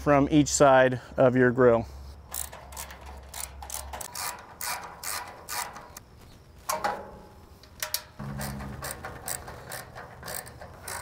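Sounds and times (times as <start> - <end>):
screwdriver clicks and scrapes: 2.3 - 6.0, 7.6 - 11.0.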